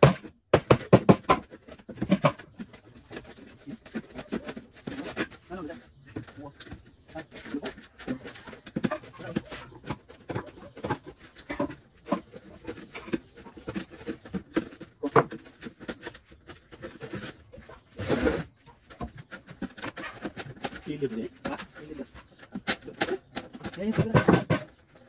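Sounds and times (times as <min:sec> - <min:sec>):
clicks taps and knocks of hand work: 0:00.0 - 0:05.4, 0:18.9 - 0:25.0.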